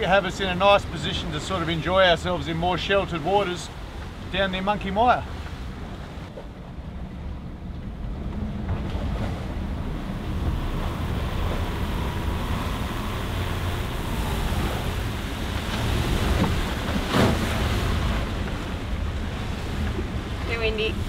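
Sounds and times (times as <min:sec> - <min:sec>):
waves rushing around boat: 0:00.0 - 0:21.0
wind: 0:00.0 - 0:21.0
wind generator whine: 0:00.0 - 0:21.0
loud water splash: 0:08.8 - 0:19.8.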